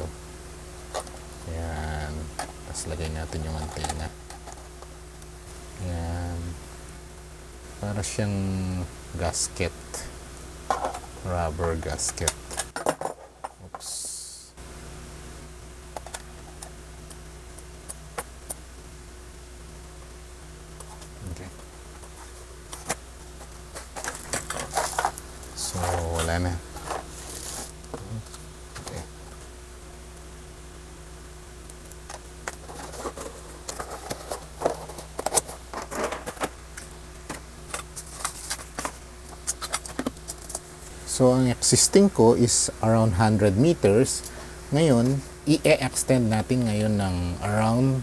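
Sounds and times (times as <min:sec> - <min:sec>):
steady low hum: 0:00.0 - 0:48.0
cardboard and plastic rustling: 0:22.1 - 0:28.1, 0:32.4 - 0:40.7.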